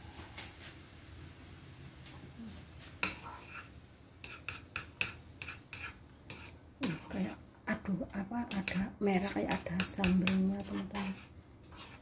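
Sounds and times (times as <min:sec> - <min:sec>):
chopsticks stirring soup in a pot: 0:03.0 - 0:07.4, 0:08.5 - 0:12.0
chopsticks tapping against pot: 0:08.5 - 0:11.1.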